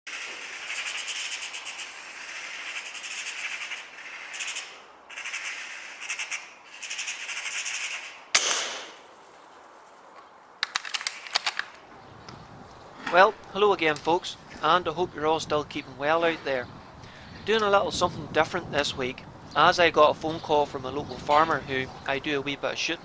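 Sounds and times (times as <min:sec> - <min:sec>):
magpie chattering: 0:00.1 - 0:08.2
gunshot ringing: 0:08.4 - 0:09.0.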